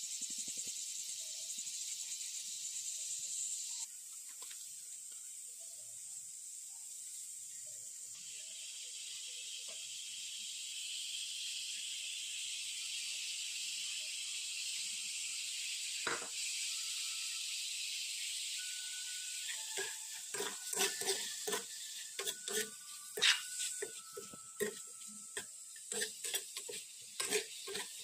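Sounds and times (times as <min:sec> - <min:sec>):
food sizzling in a frying pan: 0:00.0 - 0:28.0
metal spoon clattering on pan: 0:19.7 - 0:28.0.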